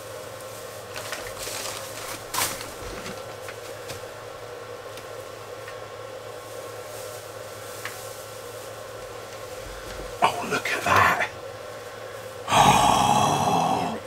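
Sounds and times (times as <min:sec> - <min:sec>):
machine hum: 0:00.0 - 0:14.0
handling rustles: 0:00.5 - 0:04.1.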